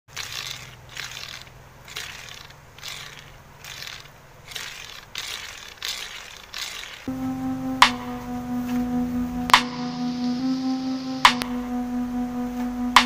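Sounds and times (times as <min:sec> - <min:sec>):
faint low hum: 0:07.1 - 0:13.0.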